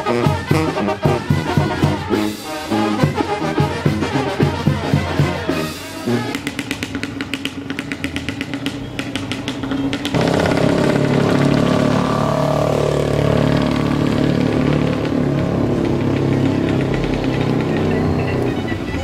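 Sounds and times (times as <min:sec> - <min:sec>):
brass band playing: 0:00.0 - 0:07.0
motor vehicle engine pulsing: 0:03.1 - 0:19.0.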